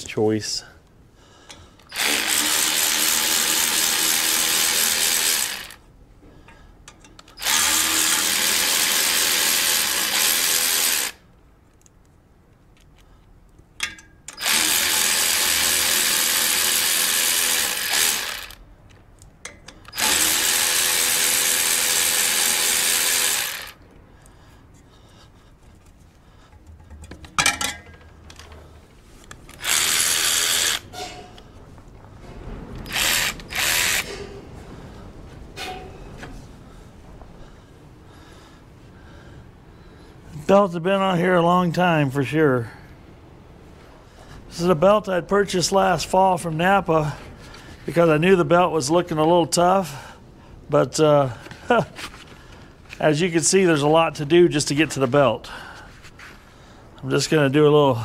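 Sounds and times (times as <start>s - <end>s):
cordless power ratchet running: 1.9s - 5.8s, 7.3s - 11.2s, 14.3s - 18.6s, 19.8s - 23.8s, 29.5s - 30.9s, 32.8s - 34.2s.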